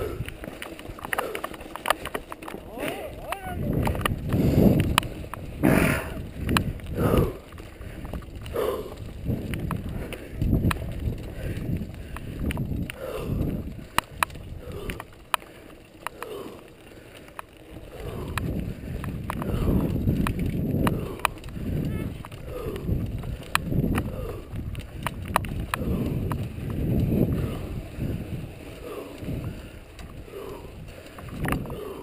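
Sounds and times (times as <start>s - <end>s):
bike clicks and knocks: 0.0s - 32.0s
tyres rumbling over stones: 0.0s - 32.0s.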